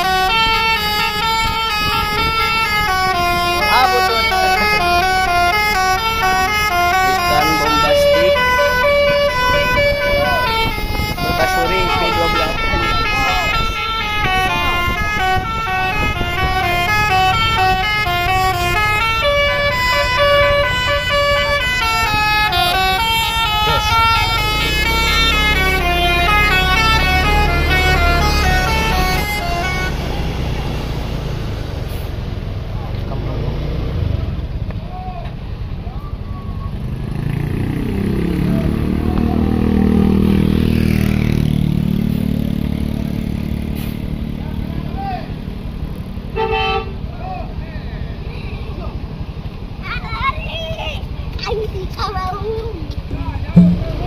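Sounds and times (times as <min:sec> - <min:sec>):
musical air horn melody: 0:00.0 - 0:30.5, 0:53.6 - 0:54.0
bus engine rumble: 0:00.0 - 0:36.8, 0:37.6 - 0:54.0.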